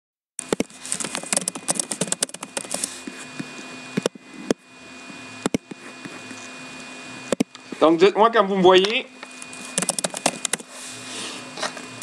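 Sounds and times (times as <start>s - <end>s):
typing on computer keyboard: 1.0s - 2.9s, 9.8s - 10.6s.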